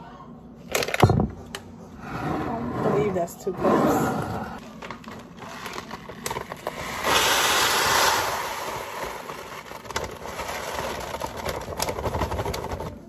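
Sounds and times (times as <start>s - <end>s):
plastic bag crinkling: 4.6s - 13.0s.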